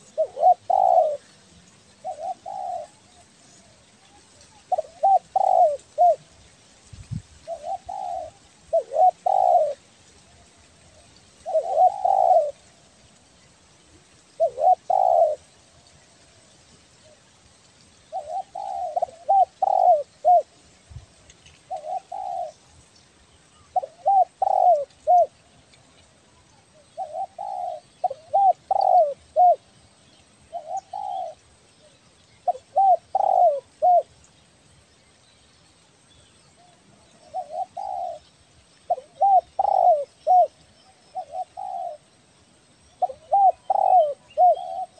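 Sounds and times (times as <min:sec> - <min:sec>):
dove cooing: 0:00.0 - 0:06.3, 0:07.4 - 0:09.8, 0:11.4 - 0:12.6, 0:14.3 - 0:15.5, 0:18.1 - 0:20.6, 0:21.6 - 0:22.6, 0:23.6 - 0:25.4, 0:26.8 - 0:29.7, 0:30.5 - 0:31.4, 0:32.4 - 0:34.2, 0:37.2 - 0:38.3, 0:38.9 - 0:42.1, 0:43.0 - 0:44.9.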